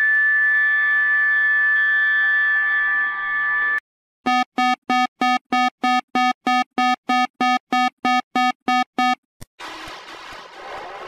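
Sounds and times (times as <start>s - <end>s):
noisy siren-like sound: 0.0s - 3.8s
buzzy alert beeps: 4.3s - 9.2s.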